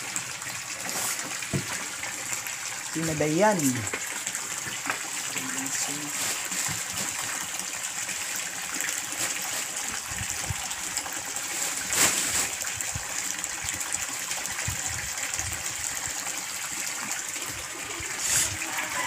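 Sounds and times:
water jet splashing into tank: 0:00.0 - 0:19.0.

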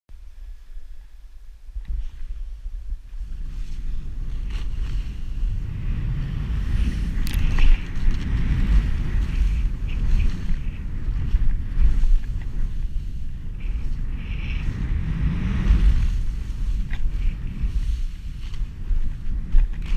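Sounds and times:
wind buffeting microphone: 0:00.2 - 0:19.9
skis hissing through snow: 0:03.2 - 0:19.5
ski edge scrape: 0:03.5 - 0:05.6, 0:06.6 - 0:19.9.

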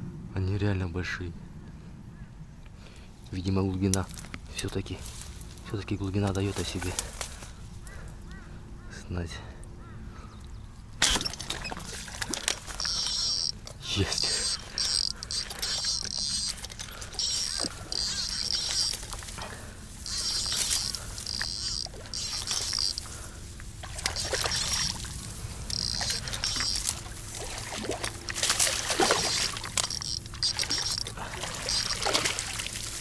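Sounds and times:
high pulsing buzz: 0:11.0 - 0:33.0
water splashing and sloshing: 0:11.0 - 0:33.0.

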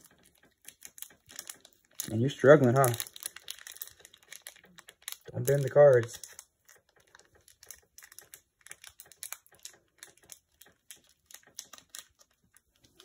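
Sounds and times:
foil wrapper crinkling: 0:00.0 - 0:13.0.

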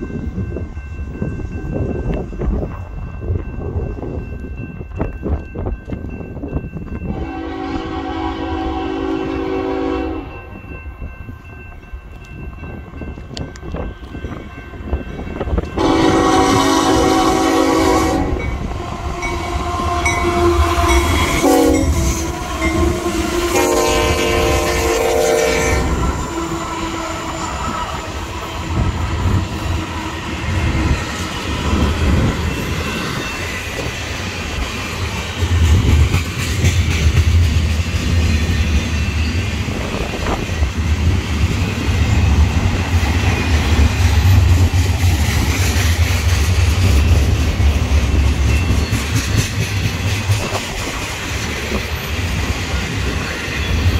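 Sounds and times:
diesel train horn: 0:07.1 - 0:10.5, 0:15.8 - 0:30.8
train wheels clacking on rails: 0:08.8 - 0:53.9
locomotives rumbling past: 0:13.1 - 0:53.9.

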